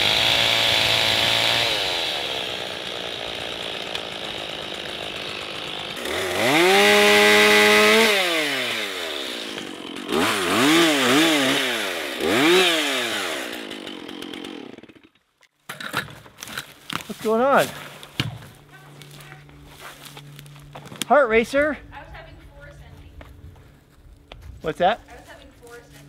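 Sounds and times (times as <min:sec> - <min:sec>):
chainsaw idling and revving: 0:00.0 - 0:15.2.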